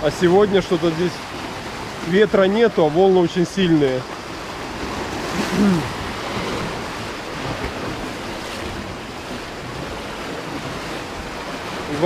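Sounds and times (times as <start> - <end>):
surf breaking on rocks: 0.0 - 12.0.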